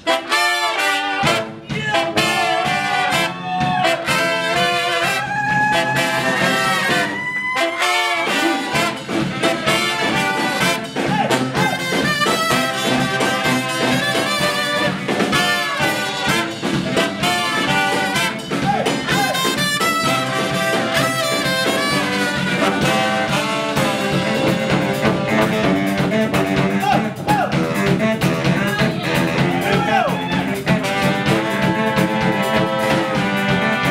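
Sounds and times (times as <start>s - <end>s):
drum kit: 0.0s - 33.9s
saxophones: 0.0s - 33.9s
trombone: 0.0s - 33.9s
trumpet: 0.0s - 33.9s.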